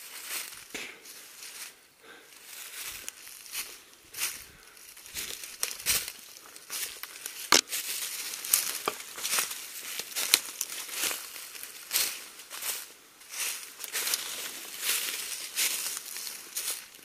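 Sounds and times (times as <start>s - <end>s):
footsteps crunching dry leaves: 0.0s - 17.0s
sharp crack: 7.4s - 7.7s.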